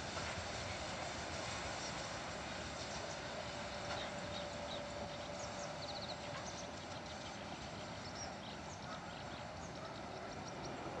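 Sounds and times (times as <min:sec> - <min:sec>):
small birds chirping: 0:02.8 - 0:11.0.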